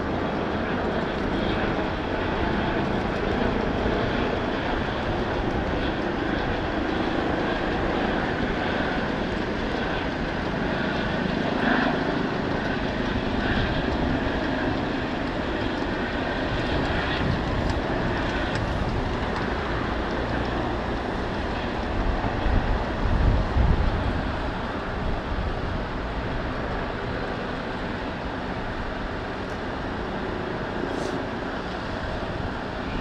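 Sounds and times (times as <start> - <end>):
helicopter rotor and engine: 0.0 - 33.0.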